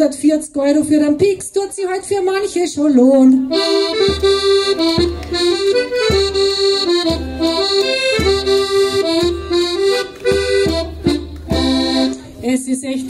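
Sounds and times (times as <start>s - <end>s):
button accordion melody with bass: 3.3s - 12.4s.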